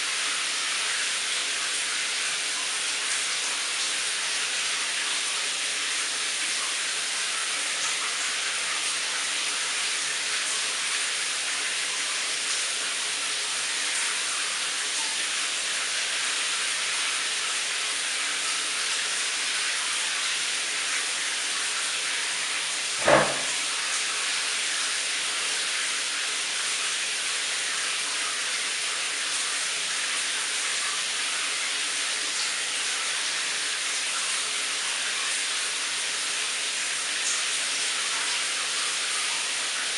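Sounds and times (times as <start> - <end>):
shower water spray hissing: 20.4 - 26.1
short knock: 23.0 - 23.6.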